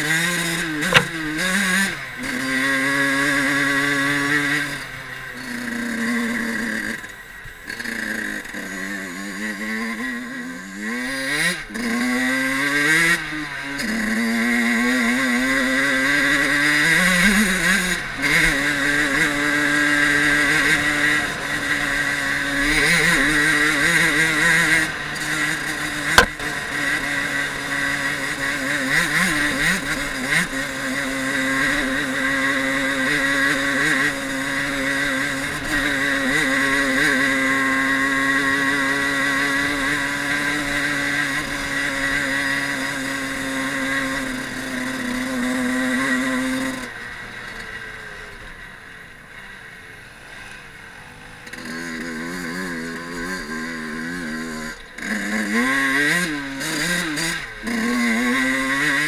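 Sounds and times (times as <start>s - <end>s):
two-stroke motorcycle engine: 0.0s - 59.0s
sharp knock: 26.2s - 26.4s.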